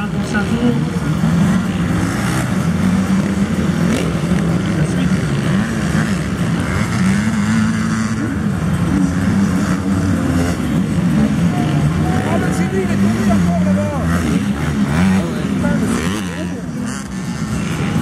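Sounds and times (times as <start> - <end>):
motorcycle engines revving: 0.0 - 18.0.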